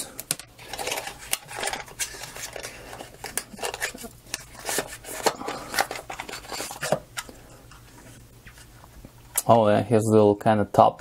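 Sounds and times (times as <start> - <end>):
cardboard rustling and scraping: 0.6 - 7.1.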